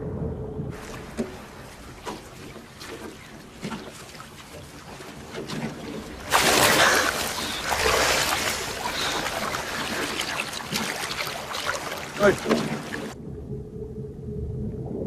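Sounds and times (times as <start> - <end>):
seawater splashing and sloshing: 0.8 - 13.2
loud splash into water: 6.2 - 13.2.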